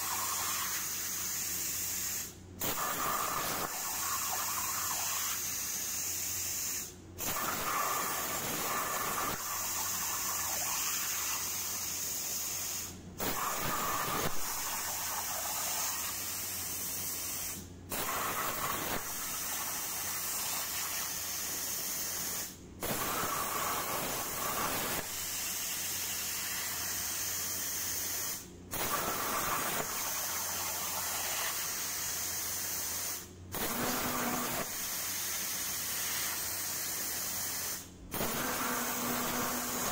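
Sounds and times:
plasma cutter arc hissing: 0:00.0 - 0:39.9.

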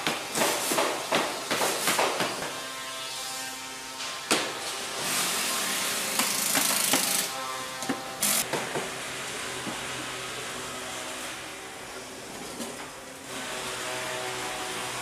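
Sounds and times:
knocks of wood and metal: 0:00.0 - 0:02.7, 0:04.0 - 0:04.7, 0:06.1 - 0:08.9.

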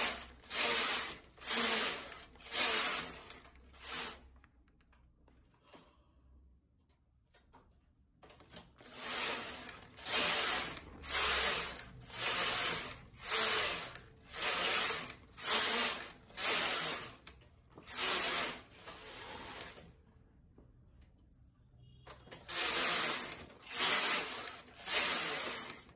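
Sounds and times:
knitting machine carriage sliding: 0:00.0 - 0:04.3, 0:08.4 - 0:19.9, 0:22.3 - 0:25.9.

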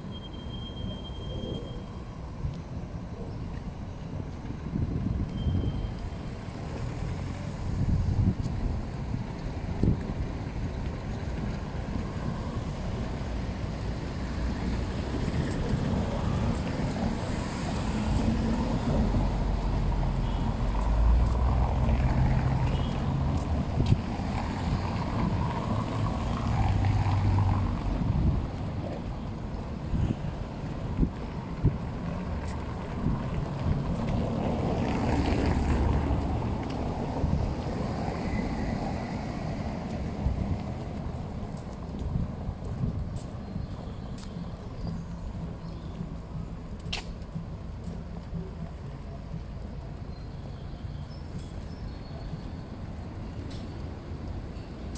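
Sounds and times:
traffic rumble: 0:00.0 - 0:54.9
footsteps on brick paving: 0:04.2 - 0:54.9
wind on microphone: 0:04.6 - 0:06.0, 0:07.0 - 0:13.1, 0:21.4 - 0:43.4.

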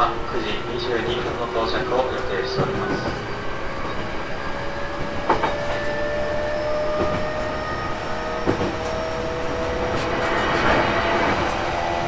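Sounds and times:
train rolling noise: 0:00.0 - 0:12.0
train motor whine: 0:02.8 - 0:12.0.

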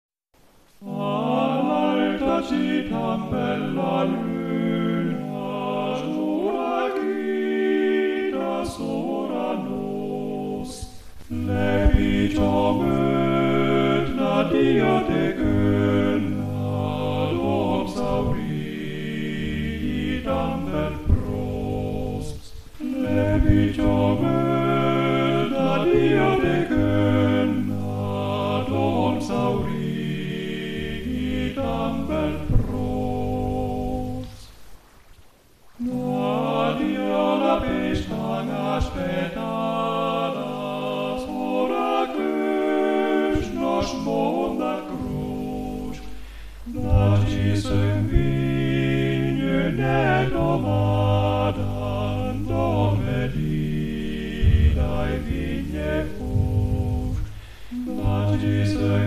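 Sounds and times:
choir singing: 0:00.8 - 0:34.8, 0:35.7 - 0:59.0.

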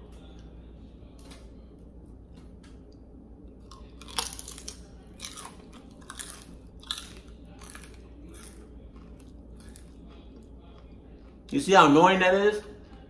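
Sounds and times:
crunching chips: 0:03.6 - 0:12.0.

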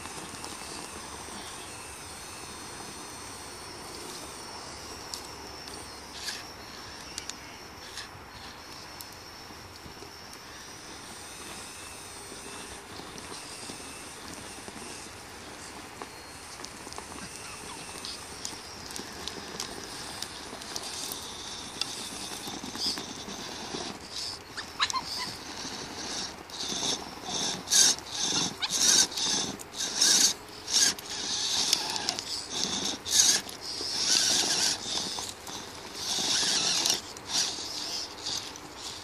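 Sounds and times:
electric motors whining: 0:00.0 - 0:39.0
tyres scrabbling on dirt and stones: 0:09.8 - 0:39.0.

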